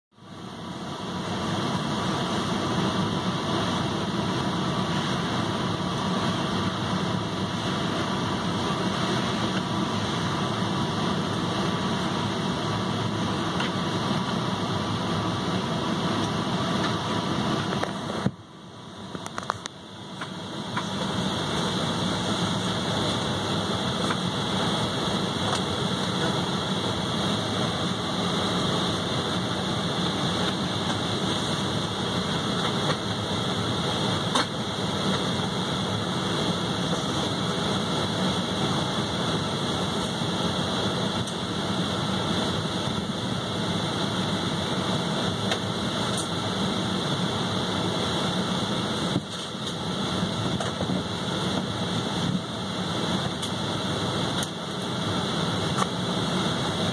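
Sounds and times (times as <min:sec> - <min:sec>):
jet engines droning: 0:00.1 - 0:56.9
rushing air: 0:00.4 - 0:56.9.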